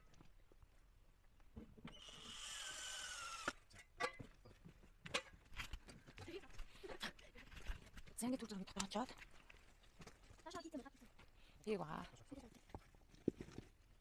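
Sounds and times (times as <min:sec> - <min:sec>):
cordless drill motor whine: 0:01.9 - 0:03.6.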